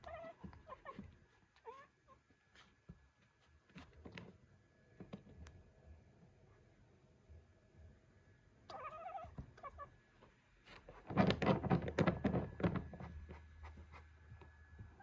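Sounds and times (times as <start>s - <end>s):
cat chirping: 0.0s - 1.0s, 8.7s - 9.9s.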